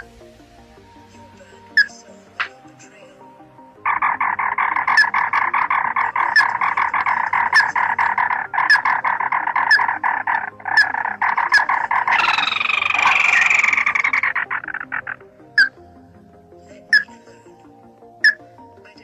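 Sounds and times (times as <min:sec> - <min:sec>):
bird rattling trill: 0:03.9 - 0:15.7.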